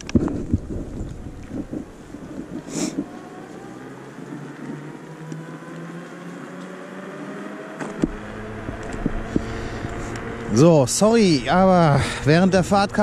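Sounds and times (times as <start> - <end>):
electric scooter motor whining: 0.0 - 13.0
rush of noise: 7.7 - 13.0.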